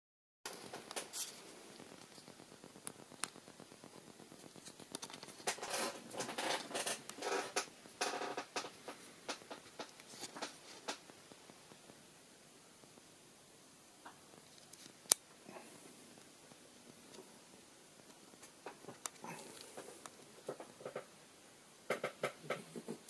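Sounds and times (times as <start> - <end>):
scratchy rustling: 0.5 - 11.9.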